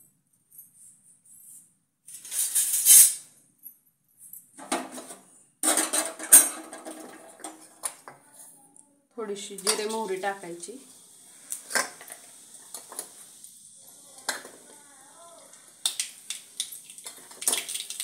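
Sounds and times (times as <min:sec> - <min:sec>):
metal utensils clinking and clattering: 0:02.1 - 0:03.2, 0:04.6 - 0:08.1, 0:09.6 - 0:10.1, 0:16.6 - 0:18.0.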